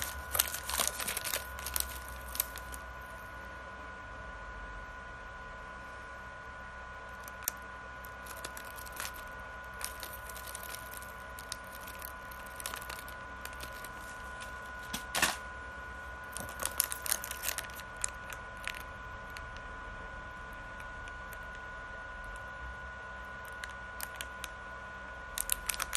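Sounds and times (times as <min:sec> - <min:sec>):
plastic packets crinkling: 0:00.0 - 0:03.3, 0:07.2 - 0:15.4, 0:16.2 - 0:19.5, 0:25.4 - 0:25.9
faint high whine: 0:00.0 - 0:25.9.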